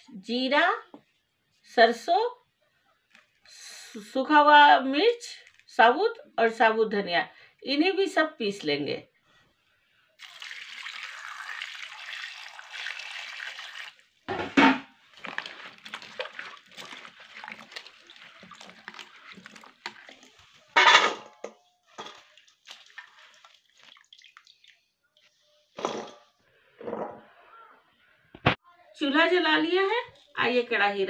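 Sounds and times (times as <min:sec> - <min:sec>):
water pouring into a pan: 0:10.2 - 0:20.8, 0:21.4 - 0:24.9
hands sloshing in water: 0:12.7 - 0:20.8, 0:21.9 - 0:24.8.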